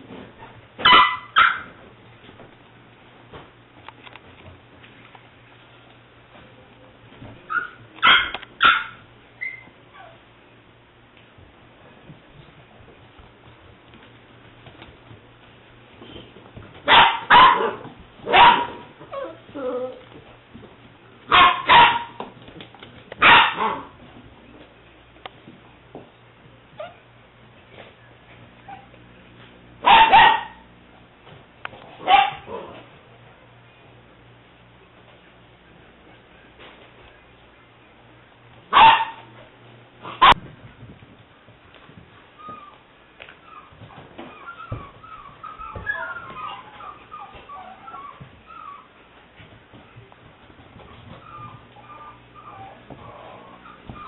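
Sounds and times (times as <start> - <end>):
puppy yipping: 0.8 - 1.7, 7.5 - 10.2, 42.4 - 42.8, 43.4 - 48.9, 50.9 - 54.0
puppy barking: 0.8 - 1.8, 7.5 - 10.2, 16.8 - 19.3, 21.3 - 22.2, 23.2 - 24.0, 29.8 - 30.6, 32.0 - 32.7, 38.7 - 39.3, 40.0 - 40.4.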